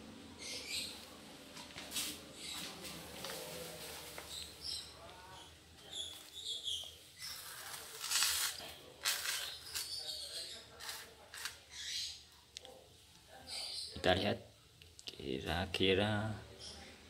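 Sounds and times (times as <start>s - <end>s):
tuber scraping on tiled floor: 7.2s - 10.0s, 10.8s - 11.6s.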